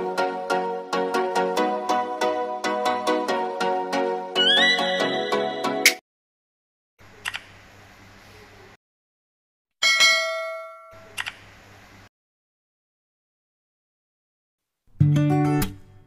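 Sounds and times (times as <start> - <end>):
sharp click: 7.2 - 7.5, 11.0 - 11.5
bright bell ding: 9.8 - 11.0.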